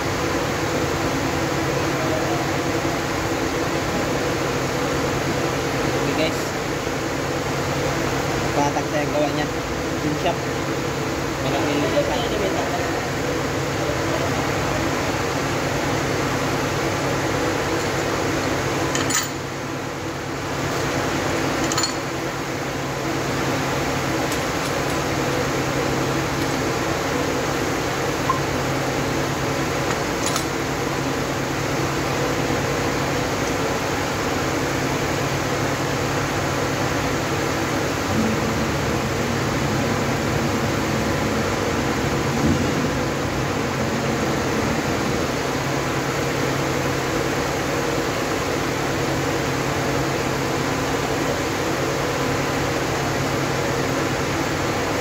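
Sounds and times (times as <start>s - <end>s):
machine hum with rushing air: 0.0s - 55.0s.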